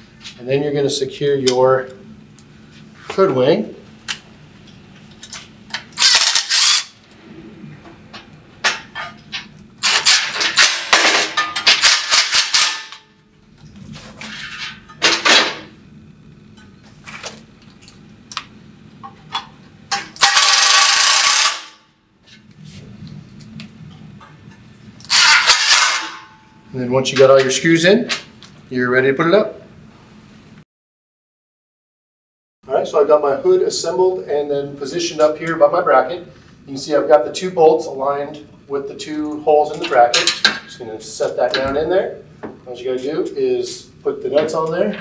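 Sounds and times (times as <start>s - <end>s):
metal parts clicking and clanking: 5.2s - 7.0s, 8.1s - 13.0s, 19.0s - 21.7s, 25.0s - 26.3s
cordless driver driving screws: 6.0s - 6.9s.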